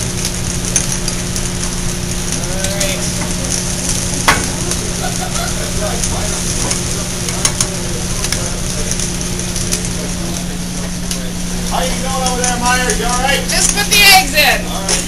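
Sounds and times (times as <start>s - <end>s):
food sizzling in frying pans: 0.0s - 15.0s
steady low hum: 0.0s - 15.0s.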